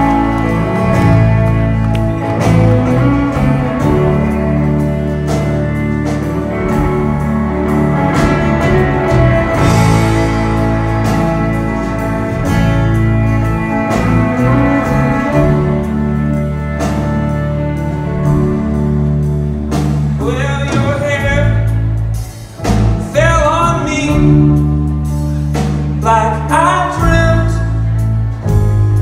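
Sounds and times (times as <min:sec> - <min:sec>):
live band instrumental: 0:00.0 - 0:29.0
drum and cymbal hits: 0:05.2 - 0:16.0.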